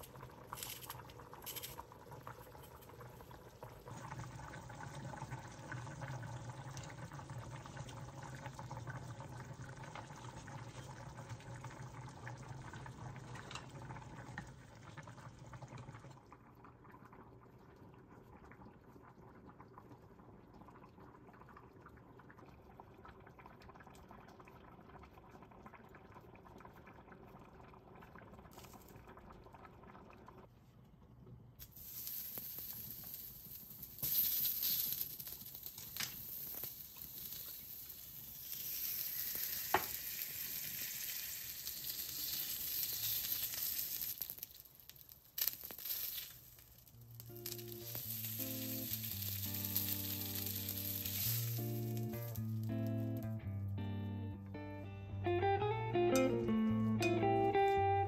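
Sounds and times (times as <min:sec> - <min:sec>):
pot bubbling at a boil: 0:00.0 - 0:53.2
bright hissing: 0:31.6 - 0:44.6, 0:45.5 - 0:53.3.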